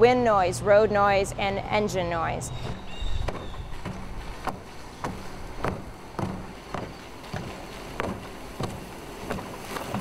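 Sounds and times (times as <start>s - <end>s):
tyre and wind noise: 2.6s - 10.0s.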